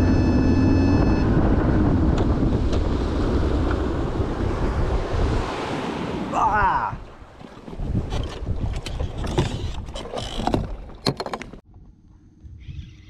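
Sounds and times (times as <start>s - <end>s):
outboard motor humming: 0.0s - 4.9s
boat hull rumbling on water: 0.0s - 6.3s, 7.0s - 11.8s
wind buffeting microphone: 0.0s - 11.0s.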